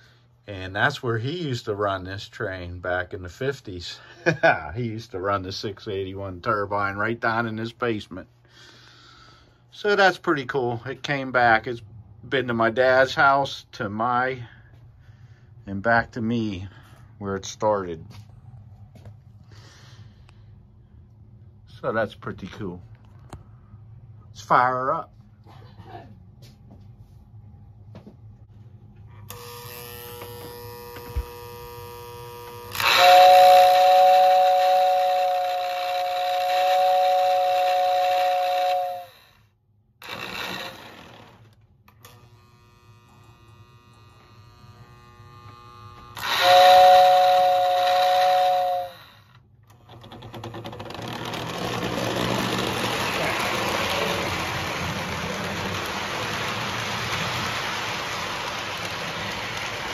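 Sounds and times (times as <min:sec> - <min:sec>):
model train rolling on track: 0:31.7 - 0:39.4, 0:40.0 - 0:41.6, 0:46.1 - 0:59.9
model train whistle chord: 0:32.6 - 0:39.4, 0:46.1 - 0:49.4, 0:51.9 - 0:56.8.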